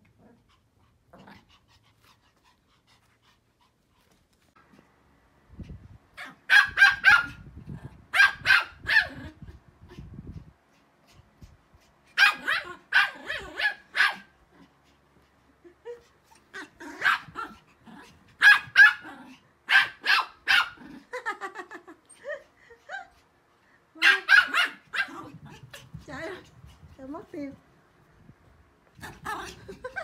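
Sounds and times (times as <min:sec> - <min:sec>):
small dog yips: 0:06.2 - 0:07.4, 0:12.2 - 0:14.3
small dogs barking: 0:06.2 - 0:07.4, 0:08.2 - 0:09.3, 0:12.2 - 0:14.4, 0:16.8 - 0:17.6, 0:18.4 - 0:20.8, 0:24.0 - 0:25.3.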